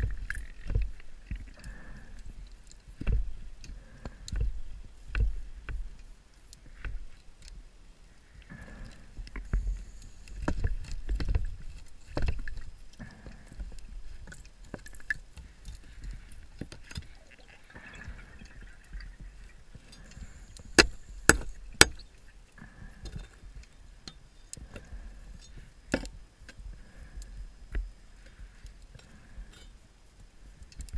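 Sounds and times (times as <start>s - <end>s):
exhaled bubbles bursting: 17.1s - 19.6s.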